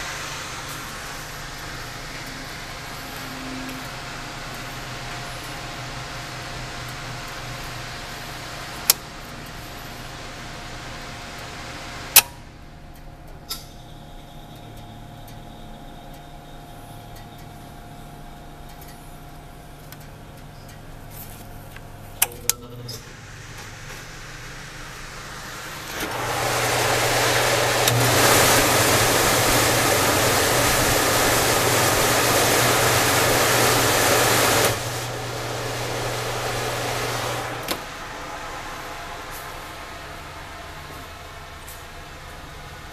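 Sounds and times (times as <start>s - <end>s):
low electrical hum: 0.0s - 26.2s
oven blower fan running: 0.0s - 42.9s.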